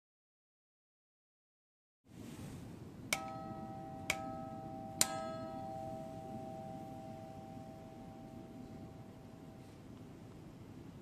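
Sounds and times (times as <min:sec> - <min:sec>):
church bell ringing: 0:03.2 - 0:09.9.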